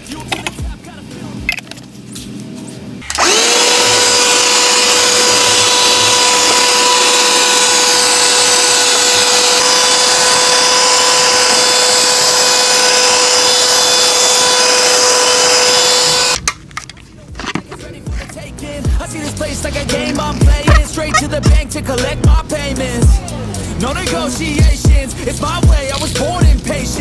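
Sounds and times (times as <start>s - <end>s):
handheld vacuum cleaner whine: 3.0s - 16.4s.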